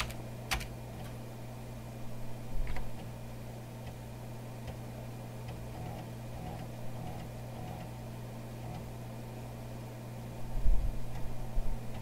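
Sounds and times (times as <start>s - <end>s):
computer hum: 0.0s - 12.0s
floppy drive ticking: 2.6s - 9.2s, 10.9s - 12.0s.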